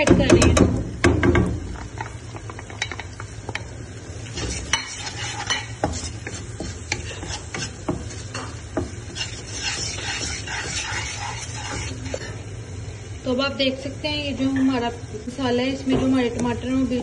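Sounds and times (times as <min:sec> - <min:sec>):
spatula tapping pan: 0:00.0 - 0:03.7, 0:04.4 - 0:11.9
oil sizzling: 0:00.0 - 0:17.0
wooden spatula scraping pan: 0:04.3 - 0:12.3.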